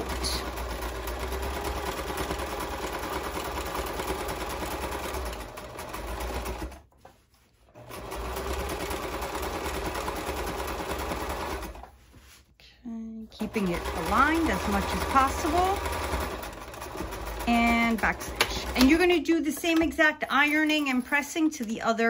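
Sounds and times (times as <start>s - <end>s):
sewing machine stitching: 0.0s - 12.0s, 13.4s - 21.7s.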